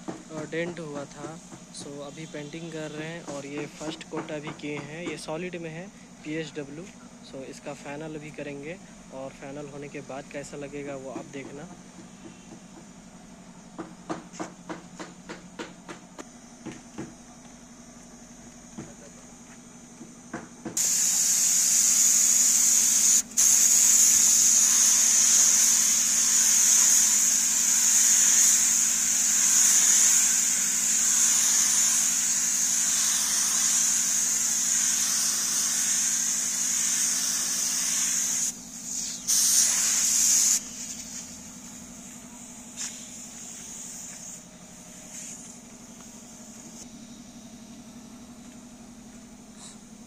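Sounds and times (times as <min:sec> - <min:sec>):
spray gun hissing: 0:00.2 - 0:04.6, 0:20.7 - 0:50.0.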